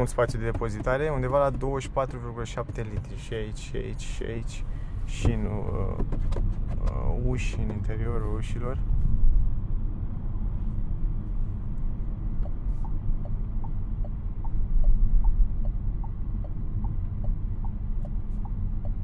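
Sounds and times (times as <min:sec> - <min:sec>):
road rumble inside car cabin: 0:00.0 - 0:19.0
turn signal ticking: 0:12.4 - 0:19.0.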